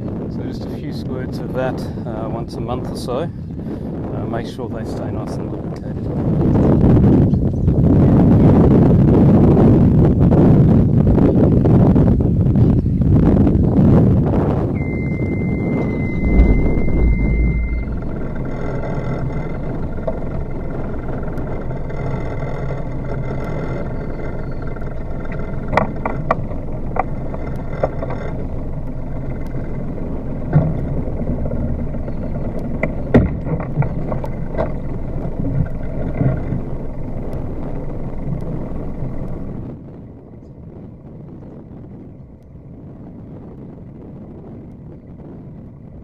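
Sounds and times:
boat engine idling: 14.8s - 39.6s.

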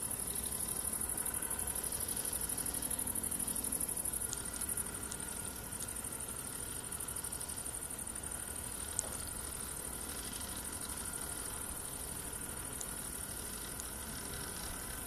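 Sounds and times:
crickets chirping: 0.0s - 15.0s
faint clicks: 4.3s - 6.0s.

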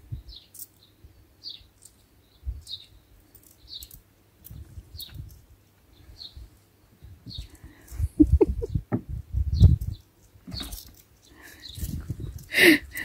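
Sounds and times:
small bird chirping: 0.0s - 13.0s.

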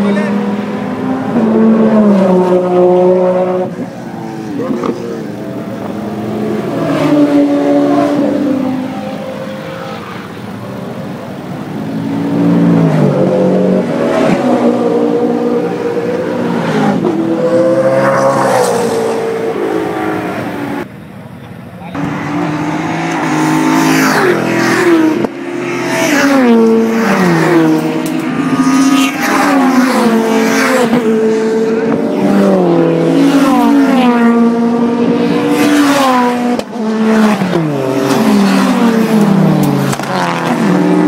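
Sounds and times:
race cars passing by: 0.0s - 41.0s.

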